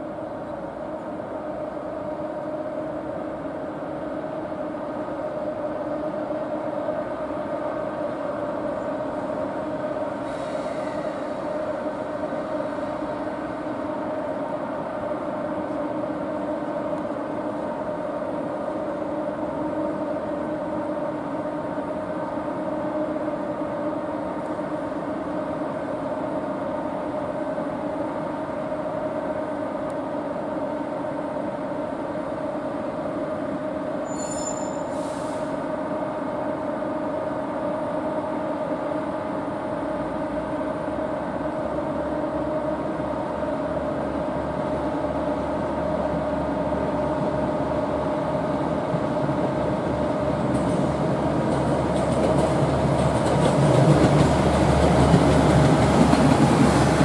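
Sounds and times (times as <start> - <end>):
high-pitched squeak: 34.0 - 35.0.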